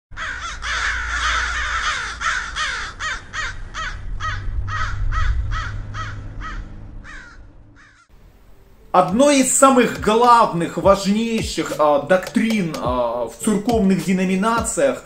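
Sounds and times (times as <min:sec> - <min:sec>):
crows cawing: 0:00.1 - 0:08.1
low rumble: 0:00.9 - 0:08.8.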